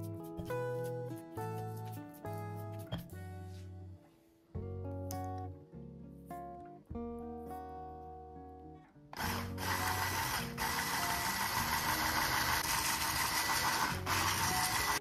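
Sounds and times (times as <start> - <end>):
acoustic guitar music: 0.0 - 15.0
electric hand blender whisking: 9.2 - 15.0.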